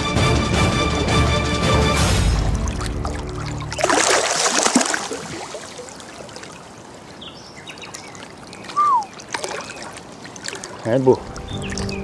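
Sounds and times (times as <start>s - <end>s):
water splash: 2.0s - 7.1s, 7.8s - 12.0s
water sloshing and trickling: 2.1s - 12.0s
short falling whistle: 8.8s - 9.1s.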